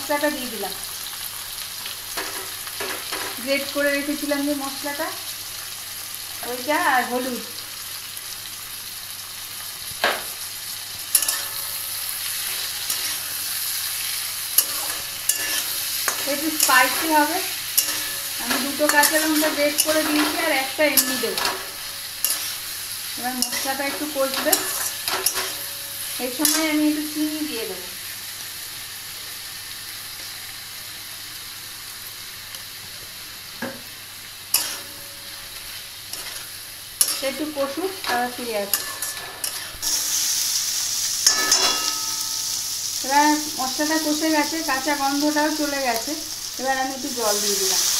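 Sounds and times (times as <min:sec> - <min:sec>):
vegetables sizzling in oil: 0:00.0 - 0:47.9
metal spatula scraping pan: 0:11.1 - 0:11.8, 0:12.4 - 0:13.5, 0:14.5 - 0:22.7, 0:23.3 - 0:26.7, 0:36.1 - 0:40.3, 0:41.2 - 0:42.6.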